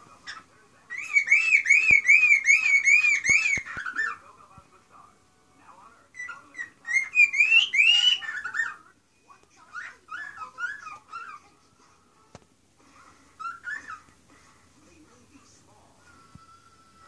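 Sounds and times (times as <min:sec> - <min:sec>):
cockatiel whistling and warbling: 0:00.2 - 0:04.2, 0:06.2 - 0:08.9, 0:09.7 - 0:11.5, 0:13.4 - 0:14.2.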